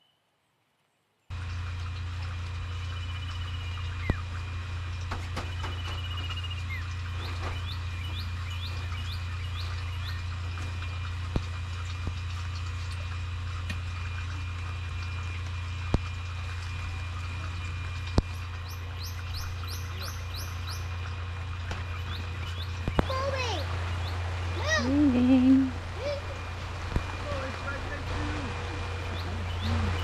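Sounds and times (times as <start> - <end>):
rain on a tent canopy: 1.3 - 30.0
bird chirping: 5.3 - 11.1, 17.7 - 30.0.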